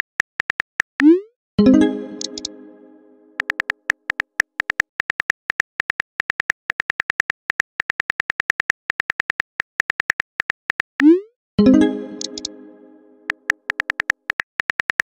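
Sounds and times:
phone keyboard typing clicks: 0.0s - 1.1s, 3.4s - 11.2s, 13.3s - 15.0s.

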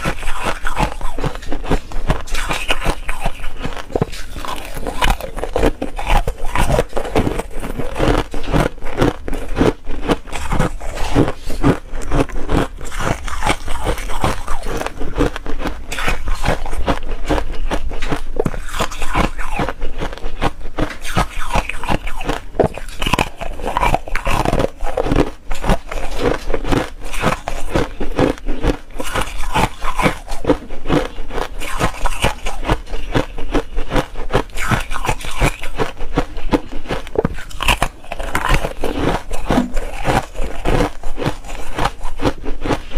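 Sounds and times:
ice being chewed: 0.0s - 42.9s.

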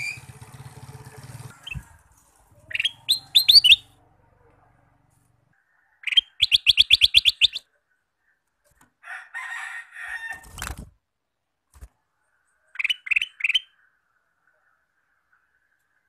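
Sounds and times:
bird singing: 0.0s - 1.9s, 2.6s - 4.0s, 5.6s - 8.5s, 12.4s - 16.0s
bird fluttering in cage: 0.0s - 2.8s, 10.1s - 11.0s, 11.7s - 12.0s
bird chattering: 2.6s - 3.9s, 6.0s - 7.6s, 12.8s - 13.8s.

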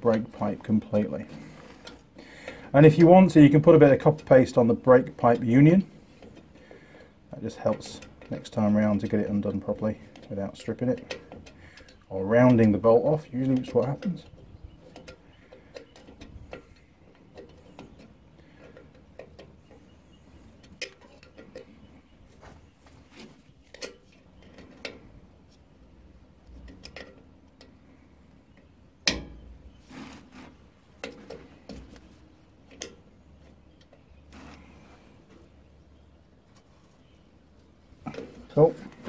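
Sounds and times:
sharp metal knock: 29.0s - 29.5s.

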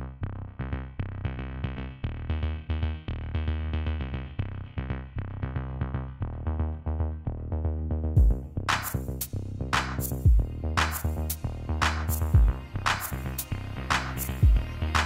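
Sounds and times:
drum machine beat: 8.2s - 15.0s
synthesizer notes: 10.1s - 15.0s.

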